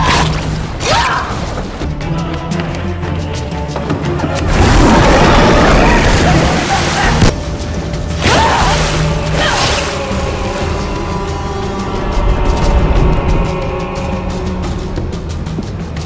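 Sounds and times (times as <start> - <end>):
film music: 0.0 - 16.0.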